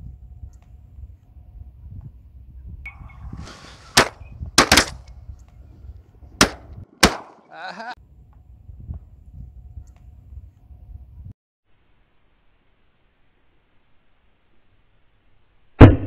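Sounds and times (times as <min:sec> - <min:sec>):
shotgun shots: 0:03.8 - 0:05.1, 0:06.4 - 0:07.5.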